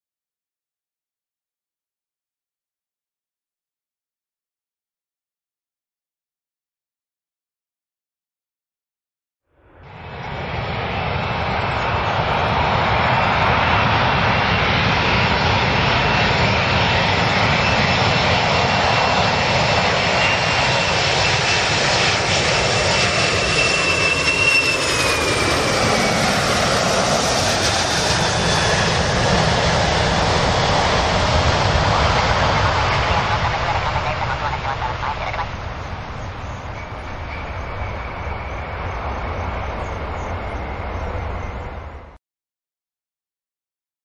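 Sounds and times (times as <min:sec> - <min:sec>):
high jet whine: 0:09.6 - 0:42.2
jet engines rumbling: 0:09.6 - 0:42.2.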